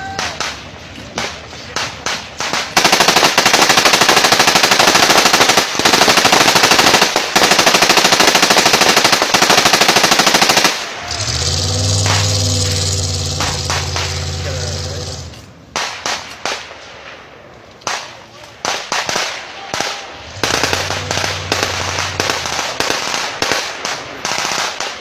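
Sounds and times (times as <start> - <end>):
gunfire: 0.1 - 17.2, 17.9 - 25.0
vehicle engine running: 11.1 - 15.7, 20.2 - 23.0.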